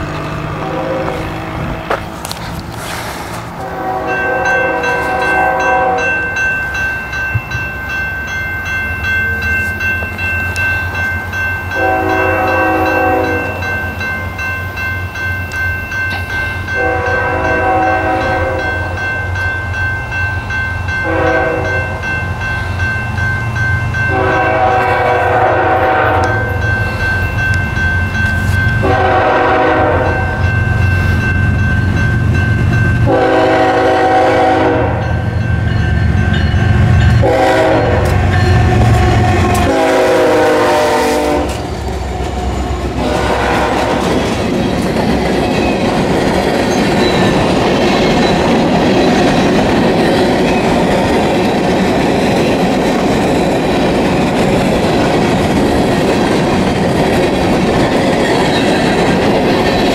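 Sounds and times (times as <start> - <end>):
train rumbling: 0.0 - 59.9
locomotive air horn blasts: 0.6 - 1.6, 3.6 - 6.2, 11.8 - 13.7, 16.8 - 19.0, 21.0 - 21.9, 24.1 - 26.6, 28.4 - 30.4, 33.0 - 35.2, 37.2 - 41.7, 42.9 - 44.1
crossing bell ringing: 3.6 - 59.9.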